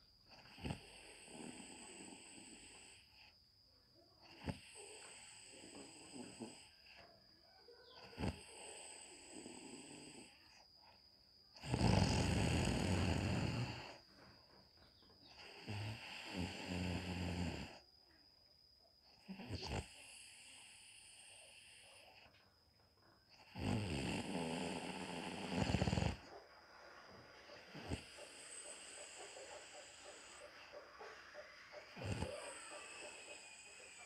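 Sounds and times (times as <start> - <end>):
woman snoring: 0.0 - 3.4, 4.2 - 7.0, 8.1 - 10.6, 11.6 - 14.0, 15.4 - 17.8, 19.2 - 21.8, 23.4 - 26.2, 27.7 - 30.4, 31.8 - 34.0.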